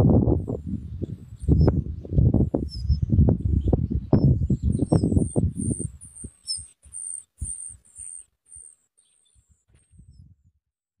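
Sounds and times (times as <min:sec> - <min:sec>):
nestlings begging calls: 0:02.4 - 0:09.5.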